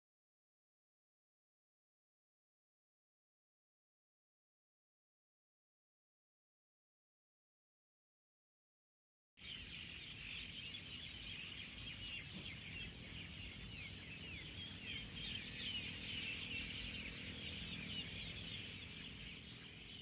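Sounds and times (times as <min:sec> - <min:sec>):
small birds chirping: 0:09.4 - 0:20.0.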